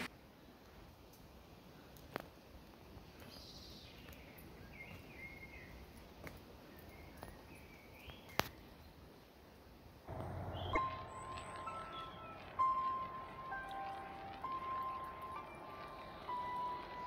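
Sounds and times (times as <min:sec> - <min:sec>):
faint birdsong chirping: 0:02.7 - 0:09.4, 0:10.1 - 0:17.0.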